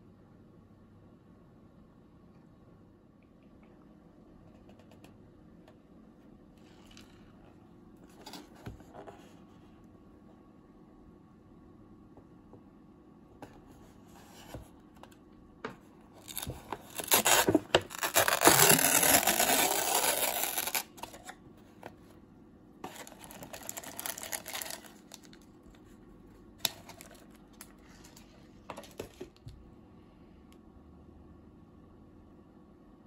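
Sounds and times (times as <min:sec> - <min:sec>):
paper lid tearing: 0:16.2 - 0:21.4, 0:22.8 - 0:25.3
plastic sachets crinkling: 0:16.2 - 0:21.4, 0:22.8 - 0:25.5, 0:26.6 - 0:29.3.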